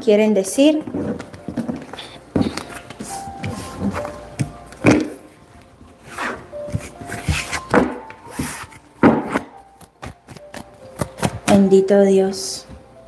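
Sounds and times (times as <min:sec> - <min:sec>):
faint background music: 0:00.0 - 0:13.0
cards being shuffled: 0:06.2 - 0:11.6.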